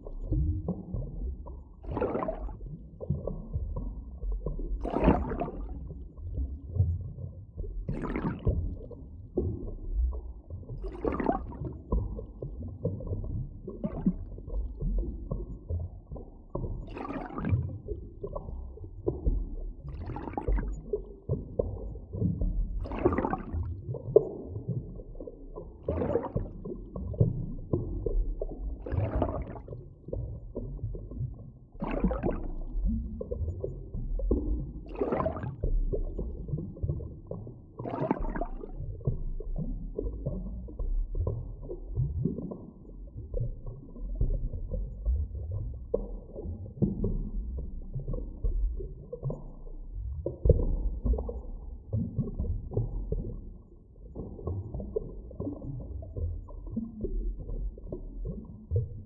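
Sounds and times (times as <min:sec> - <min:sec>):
underwater low rumble: 0:00.0 - 0:59.0
water gurgling and bubbling: 0:00.0 - 0:59.0.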